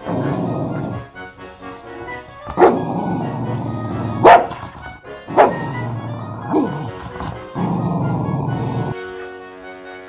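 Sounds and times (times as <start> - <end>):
dog barking: 2.5 - 9.0.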